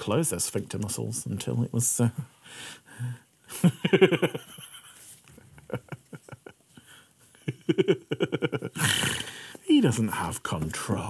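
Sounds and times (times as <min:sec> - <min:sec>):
man breathing: 0:02.4 - 0:03.3, 0:06.7 - 0:07.4, 0:08.8 - 0:09.6
man laughing: 0:03.5 - 0:09.4.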